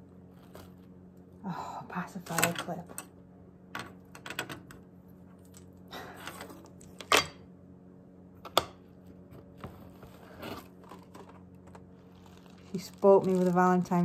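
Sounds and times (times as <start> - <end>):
faint steady hum: 0.0 - 14.0
plastic wrapping rustling: 9.8 - 14.0.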